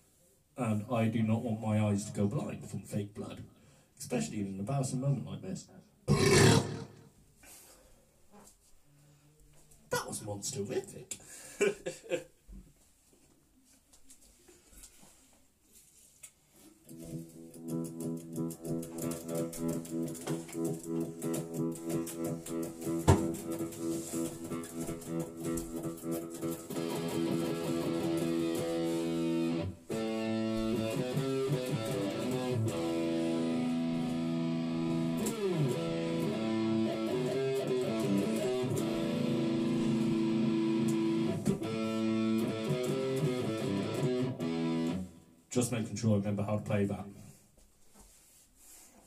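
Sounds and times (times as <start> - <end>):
electric guitar playing: 17.3 - 45.3.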